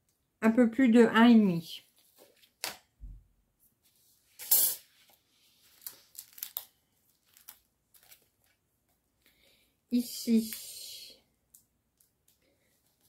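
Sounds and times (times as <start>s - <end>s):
tearing-like rustle of packaging: 4.4s - 8.6s
small clicks and rustles: 4.9s - 9.3s, 11.4s - 13.0s.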